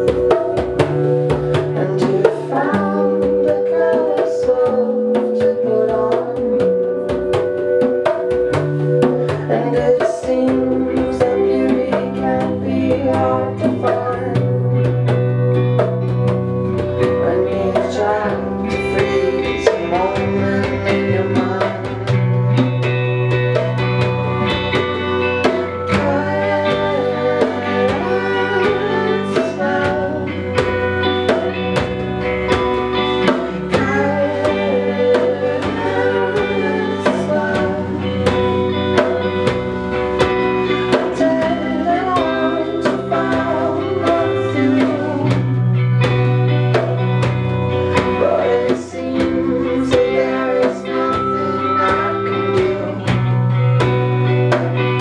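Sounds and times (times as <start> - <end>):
guitar: 0.0 - 55.0
hand drums beat: 0.0 - 55.0
keyboard: 0.0 - 55.0
person singing: 0.0 - 55.0.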